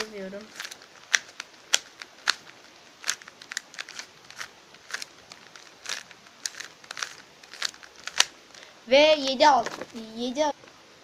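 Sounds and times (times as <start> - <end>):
puzzle cube clicking as turned: 0.5 - 8.3.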